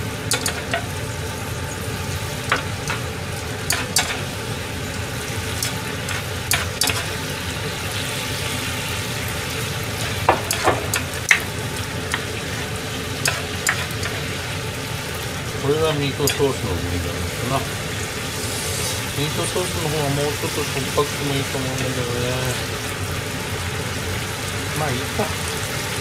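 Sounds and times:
sauce sizzling: 0:00.0 - 0:26.0.

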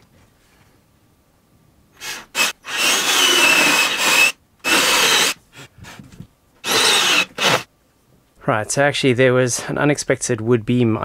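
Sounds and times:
cordless drill boring through wood: 0:02.0 - 0:05.4, 0:06.6 - 0:07.7.

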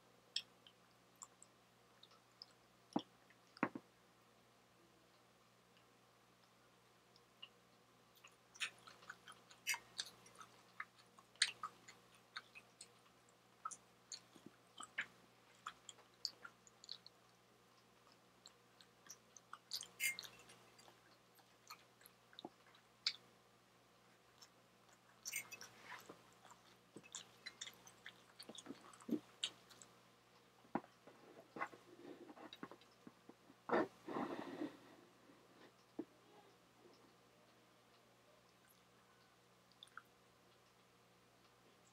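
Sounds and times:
chewing with wet smacks: 0:00.3 - 0:03.6, 0:05.8 - 0:23.3, 0:24.2 - 0:31.8, 0:38.5 - 0:41.9.

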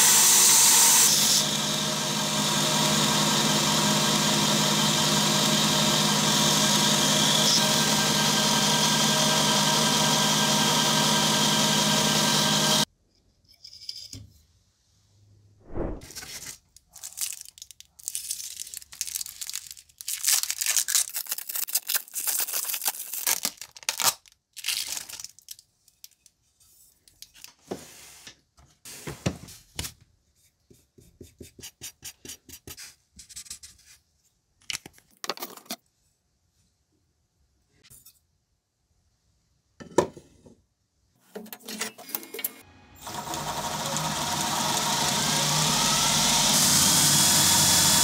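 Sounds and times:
plastic wrapping crinkling: 0:16.2 - 0:26.2.

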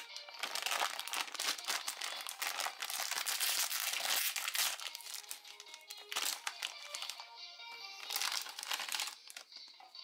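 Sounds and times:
plastic foil bag crinkling: 0:00.0 - 0:09.7.

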